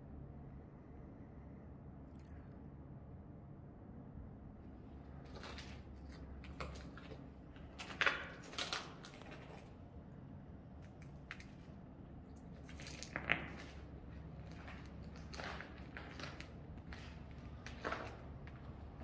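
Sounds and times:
steady low hum: 0:00.0 - 0:19.0
footsteps on gritty concrete: 0:05.1 - 0:09.8, 0:10.8 - 0:19.0.

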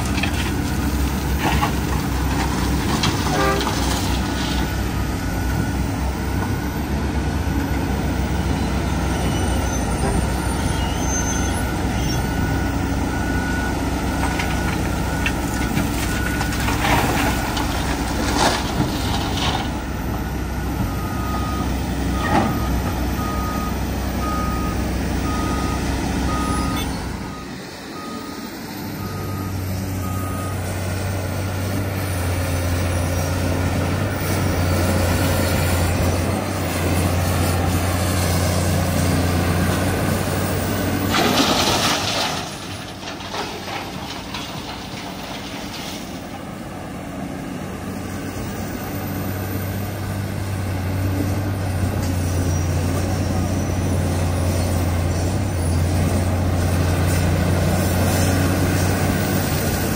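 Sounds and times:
heavy diesel machinery running: 0:00.0 - 0:59.9
reversing alarm beeping: 0:04.6 - 0:17.6, 0:19.1 - 0:33.2.

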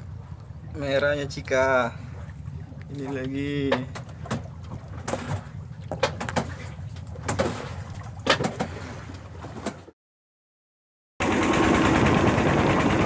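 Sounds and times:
boat engine humming: 0:00.0 - 0:09.9, 0:11.2 - 0:13.0
knocks and clicks of handling: 0:03.7 - 0:06.6, 0:08.2 - 0:08.7.

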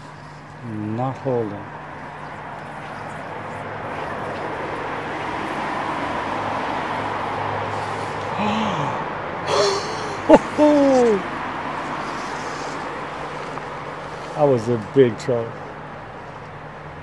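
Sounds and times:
man grunting: 0:08.3 - 0:11.3.

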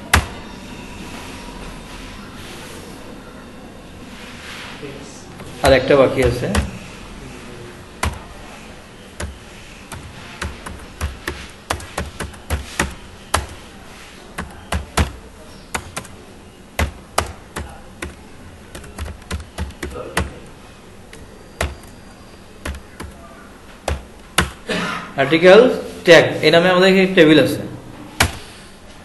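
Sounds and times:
typing on computer keyboard: 0:06.2 - 0:06.8, 0:08.0 - 0:08.3, 0:09.2 - 0:13.7, 0:14.4 - 0:16.2, 0:16.8 - 0:22.0, 0:22.6 - 0:23.2, 0:23.8 - 0:24.6.

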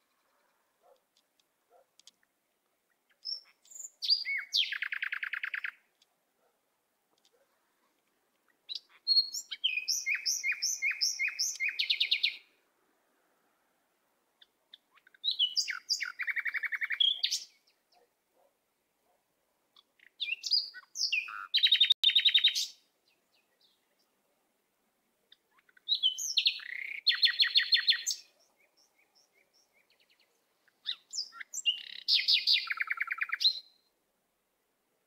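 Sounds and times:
songbird singing trills: 0:02.8 - 0:05.9, 0:08.5 - 0:12.5, 0:14.4 - 0:18.0, 0:19.8 - 0:24.2, 0:25.3 - 0:33.9.

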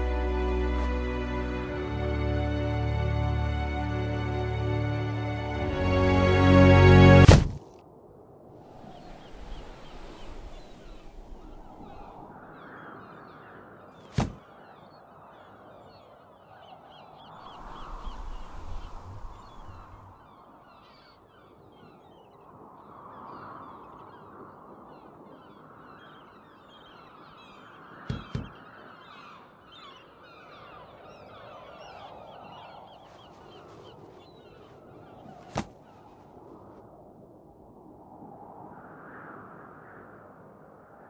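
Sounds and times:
birds calling: 0:08.7 - 0:22.3, 0:25.4 - 0:36.5.

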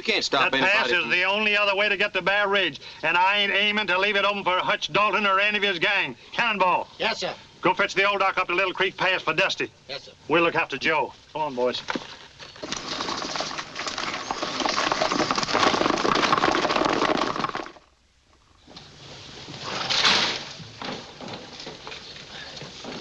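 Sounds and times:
timber and stones scraping: 0:11.6 - 0:17.9
clatter of horses' hooves: 0:11.8 - 0:17.9, 0:19.7 - 0:23.0
brief crash: 0:19.6 - 0:20.6.

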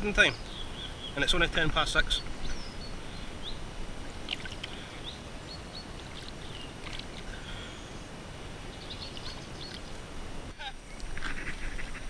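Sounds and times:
water sloshing and splashing: 0:04.2 - 0:04.9, 0:05.9 - 0:07.4.

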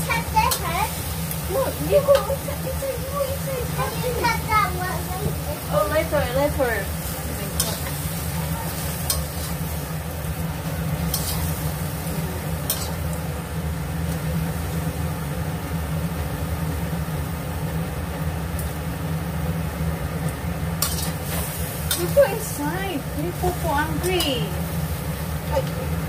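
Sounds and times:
cabbage sizzling in a wok: 0:00.0 - 0:26.0
low steady hum: 0:00.0 - 0:26.0
metal spatula scraping a pan: 0:07.0 - 0:09.9, 0:11.0 - 0:11.8, 0:12.6 - 0:13.0, 0:20.8 - 0:22.2.

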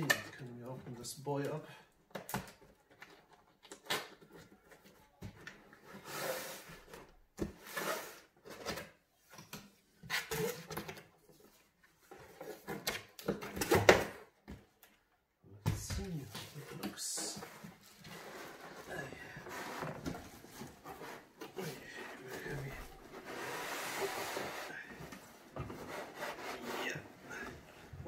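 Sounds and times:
cardboard scraping and rustling: 0:16.0 - 0:28.0.

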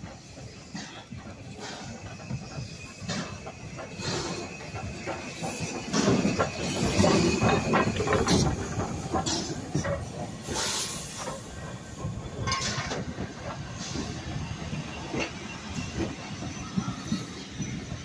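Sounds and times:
carriages clicking over rail joints: 0:00.0 - 0:18.0
steam locomotive passing slowly: 0:00.0 - 0:18.0
short hisses of steam: 0:10.4 - 0:11.5.

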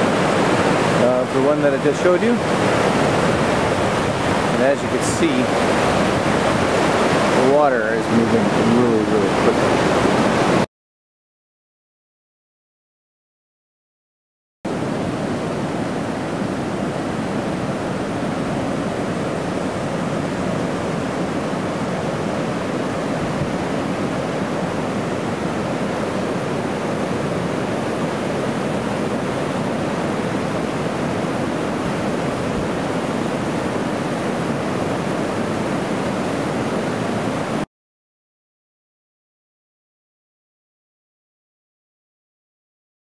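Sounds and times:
rushing whitewater: 0:00.0 - 0:10.6, 0:14.7 - 0:37.6.

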